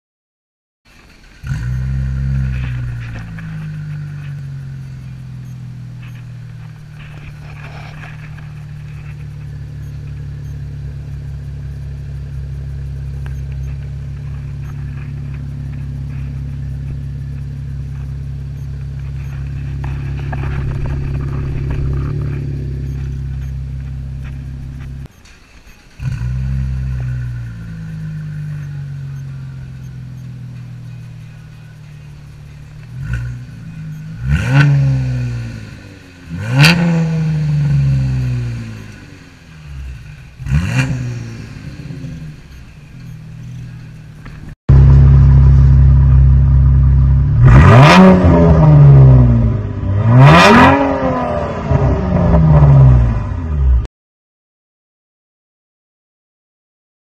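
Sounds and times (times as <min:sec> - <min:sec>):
car engine starting and idling: 0:00.9 - 0:53.9.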